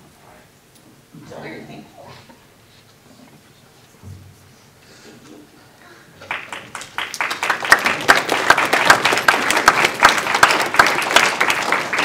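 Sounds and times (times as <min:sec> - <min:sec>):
audience applauding: 0:06.2 - 0:12.0.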